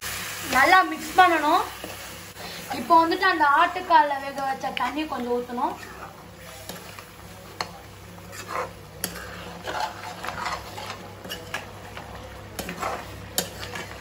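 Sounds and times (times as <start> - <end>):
spoon scraping through gravy: 5.7 - 14.0.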